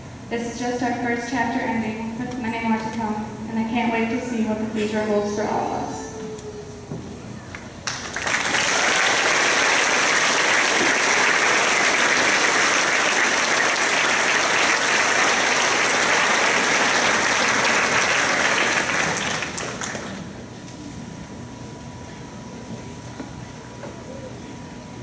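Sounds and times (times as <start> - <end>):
audience applauding: 7.5 - 20.4.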